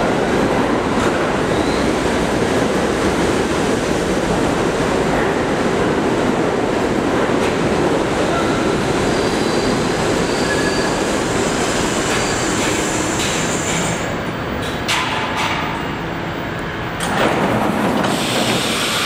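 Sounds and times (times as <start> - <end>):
subway train rumbling to a stop: 0.0 - 19.0
air brake hiss: 18.0 - 19.0.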